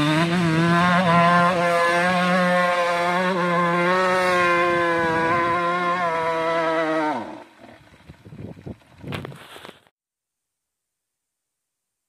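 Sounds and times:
dirt bike engine at high revs: 0.0s - 9.8s.

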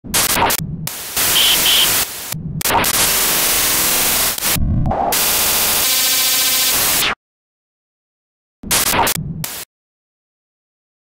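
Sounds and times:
static and glitch noise: 0.1s - 7.2s, 8.7s - 9.7s
short high beeps: 1.3s - 2.0s.

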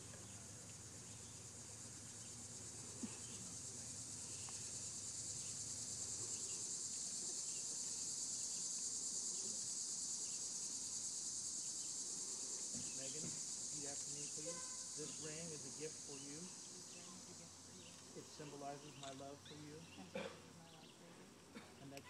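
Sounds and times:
insects chorusing: 0.0s - 22.0s.

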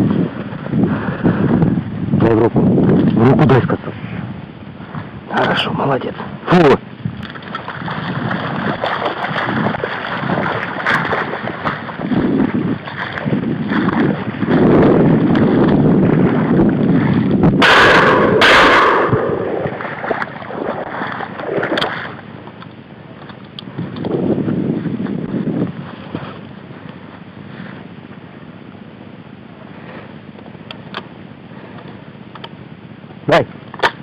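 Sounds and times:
wind buffeting microphone: 0.0s - 32.3s
footsteps sloshing through water: 7.1s - 17.8s, 18.4s - 28.9s.

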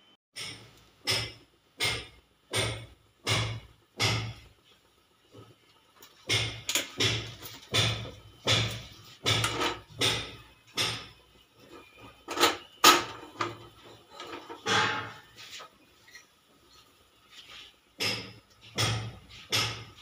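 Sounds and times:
saucepan scraping on burner grate: 4.2s - 10.4s, 11.0s - 19.6s.

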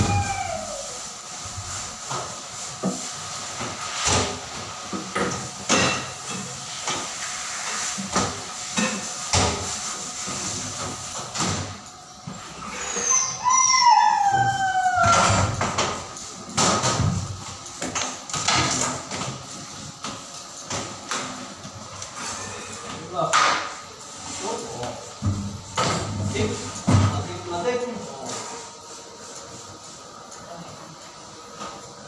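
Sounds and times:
cat meowing: 0.0s - 1.0s.

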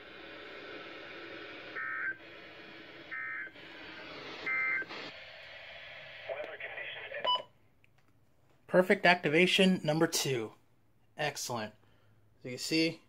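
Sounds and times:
radio hiss: 0.0s - 7.4s.

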